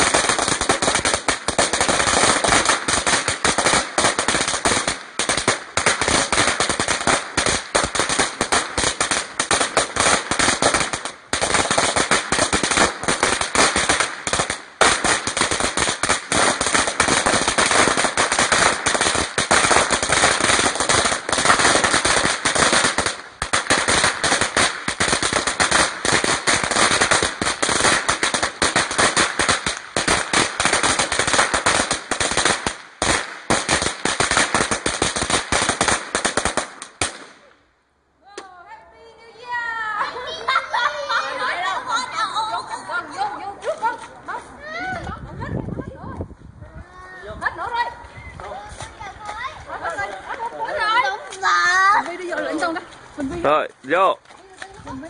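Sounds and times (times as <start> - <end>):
firecrackers popping: 0.0 - 37.7.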